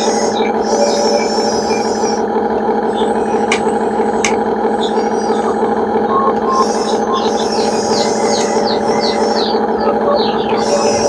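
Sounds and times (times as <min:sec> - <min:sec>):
birds chirping: 0:00.0 - 0:11.0
toy motor whining: 0:00.0 - 0:11.0.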